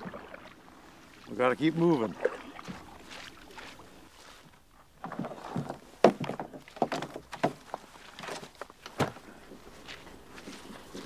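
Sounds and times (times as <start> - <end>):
knocks and thumps: 5.0 - 7.7.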